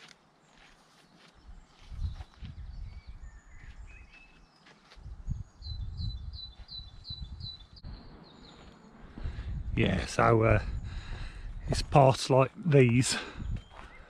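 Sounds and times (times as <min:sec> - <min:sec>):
walking footsteps: 0:00.0 - 0:05.2, 0:08.3 - 0:09.4, 0:11.0 - 0:14.0
small birds singing: 0:00.0 - 0:14.0.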